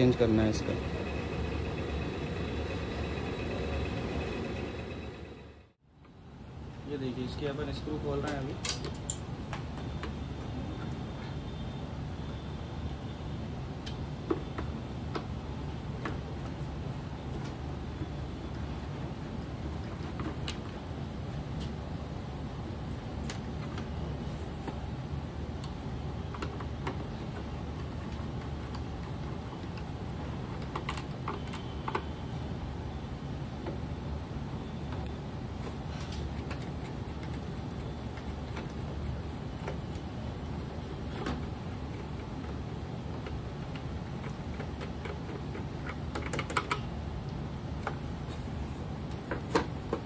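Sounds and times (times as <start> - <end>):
steady low hum: 0.0 - 7.5.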